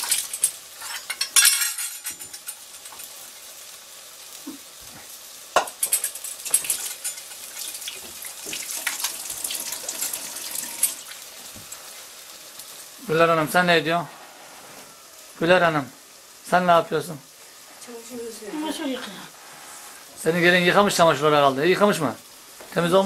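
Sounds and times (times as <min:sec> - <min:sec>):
dishes clinking and clattering: 0:00.0 - 0:03.0, 0:05.6 - 0:07.4
tap water running into sink: 0:07.5 - 0:11.7.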